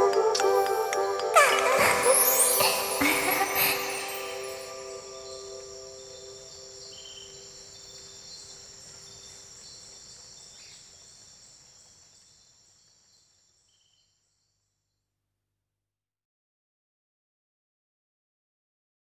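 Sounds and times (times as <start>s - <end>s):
pop song sustained notes: 0.0s - 5.6s
high steady shimmer: 0.5s - 7.7s.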